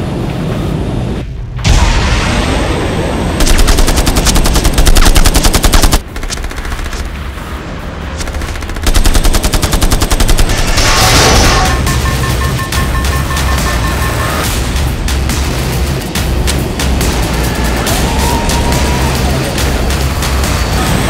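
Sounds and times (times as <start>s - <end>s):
jet cannon rapid fire: 1.6s - 7.5s, 8.1s - 14.7s.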